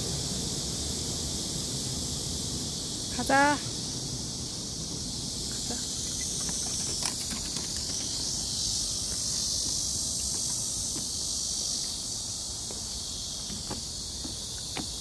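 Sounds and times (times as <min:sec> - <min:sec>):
insects chirring: 0:00.0 - 0:15.0
footsteps on wooden steps: 0:09.0 - 0:11.3, 0:12.6 - 0:15.0.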